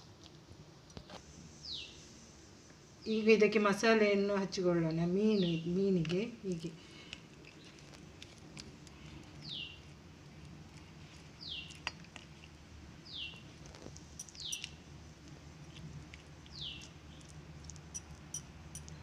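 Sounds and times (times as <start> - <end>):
bird chirping: 14.2 - 14.8.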